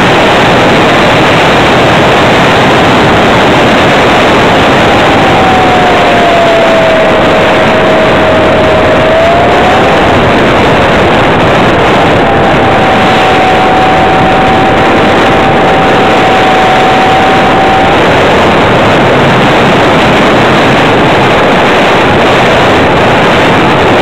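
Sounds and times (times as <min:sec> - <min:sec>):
engine and air rushing: 0:00.0 - 0:24.0
thin steady whine: 0:00.0 - 0:24.0.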